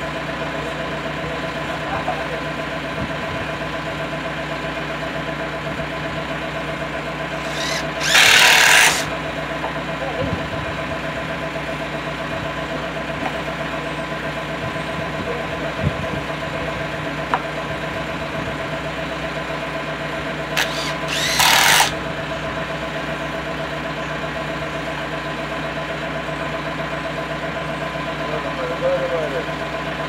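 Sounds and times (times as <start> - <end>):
engine idling: 0.0 - 30.0
cordless drill driving a screw: 7.4 - 9.2, 20.6 - 22.0.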